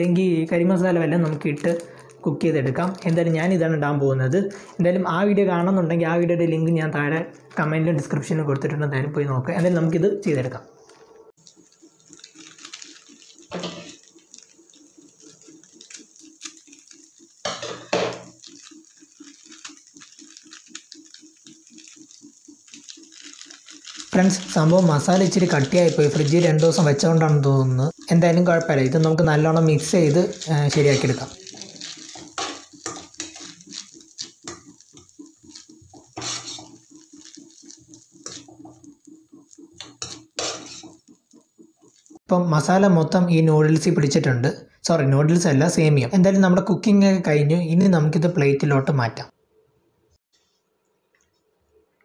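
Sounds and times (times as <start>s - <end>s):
foil sachet crinkling: 1.2s - 3.5s, 11.4s - 42.2s
faint fast regular pulsing: 10.1s - 42.3s
metal spoon scraping a pan: 12.0s - 14.5s, 15.2s - 41.3s.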